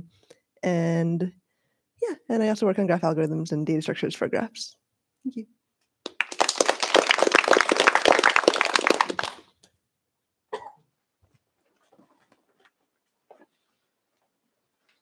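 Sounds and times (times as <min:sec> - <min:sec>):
audience applauding: 0:06.0 - 0:09.4.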